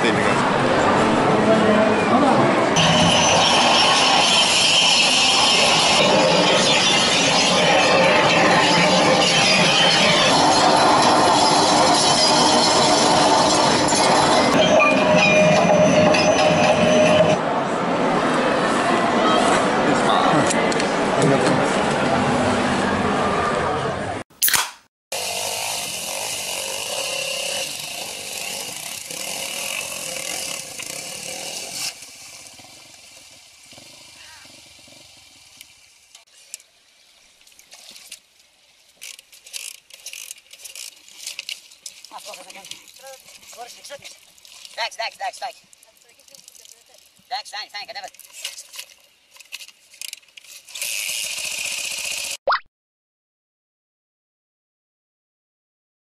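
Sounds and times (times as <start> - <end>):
loud steady rail noise: 0.0 - 24.2, 25.2 - 36.2
high-pitched wheel squeal whine: 1.5 - 17.4.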